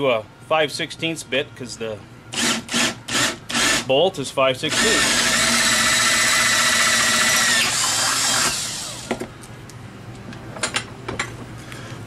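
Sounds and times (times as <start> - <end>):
electric drill boring through metal: 2.3 - 3.8, 4.7 - 9.1.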